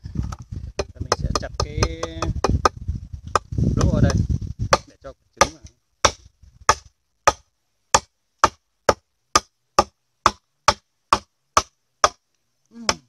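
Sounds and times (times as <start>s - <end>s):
machete chopping bamboo: 4.1s - 12.2s.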